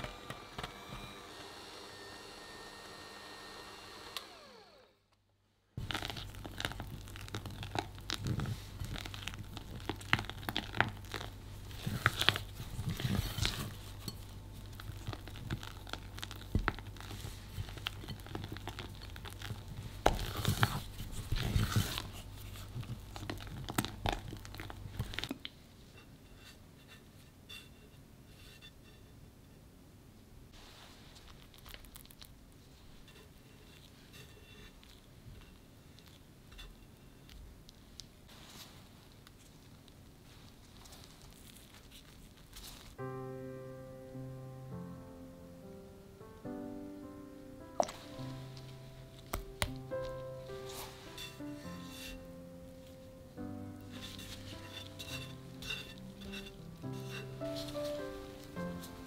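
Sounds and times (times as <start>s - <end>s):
electric hand mixer winding down: 0.0s - 5.0s
spatula scraping a glass bowl: 10.3s - 16.4s, 33.0s - 35.6s, 50.6s - 52.3s, 53.9s - 58.8s.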